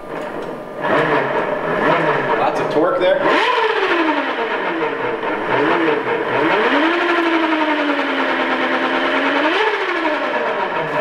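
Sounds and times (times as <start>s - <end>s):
electric motor whine: 3.3s - 11.0s.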